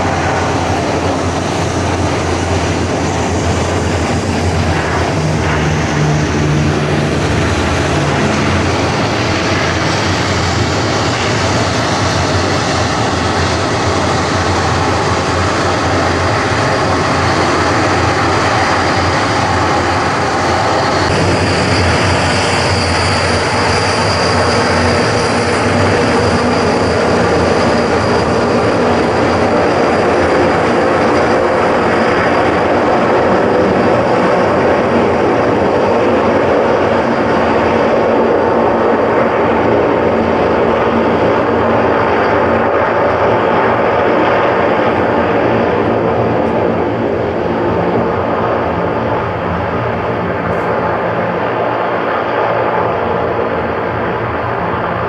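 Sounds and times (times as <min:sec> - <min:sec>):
aircraft engines running: 0:00.0 - 0:55.0
high whine: 0:00.0 - 0:55.0.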